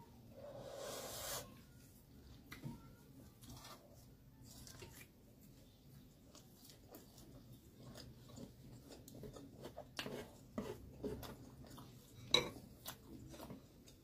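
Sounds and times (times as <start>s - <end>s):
chewing with wet mouth sounds: 4.4s - 14.0s.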